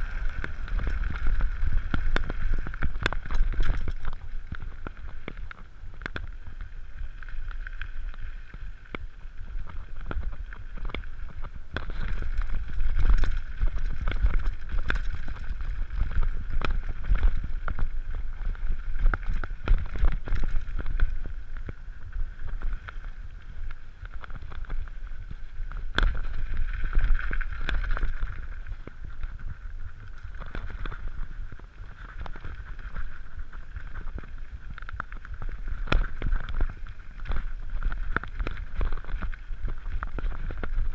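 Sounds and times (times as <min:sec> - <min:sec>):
bike rattling over bumps: 0:00.0 - 0:40.9.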